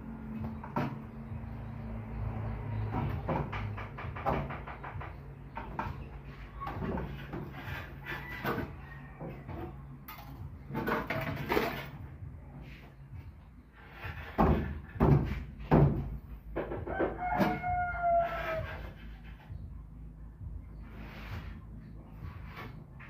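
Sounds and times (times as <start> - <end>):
rooster crowing: 8.1 - 9.8, 16.8 - 19.0.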